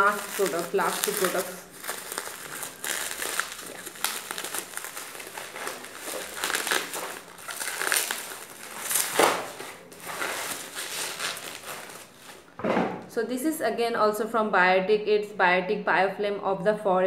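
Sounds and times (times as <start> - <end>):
bubble wrap crackle: 0.0 - 12.5
bubble wrap crinkling: 0.0 - 12.6.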